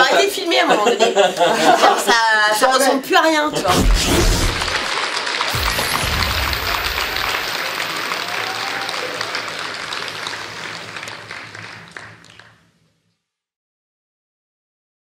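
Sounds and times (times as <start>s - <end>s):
crowd applause: 4.7s - 12.6s.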